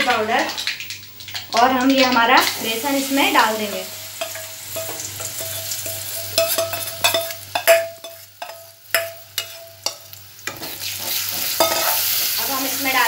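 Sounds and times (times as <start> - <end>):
oil sizzling: 0.0 - 13.0
metal spoon knocking a pan: 4.2 - 10.8, 11.6 - 12.0.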